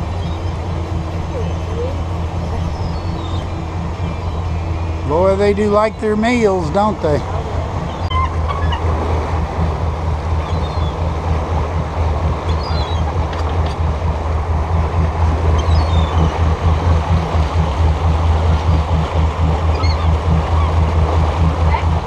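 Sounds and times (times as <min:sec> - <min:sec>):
churning wake rushing: 0:00.0 - 0:22.0
motorboat engine droning: 0:00.0 - 0:22.0
wind: 0:00.0 - 0:22.0
faint gull calls: 0:07.2 - 0:08.9, 0:19.6 - 0:20.9.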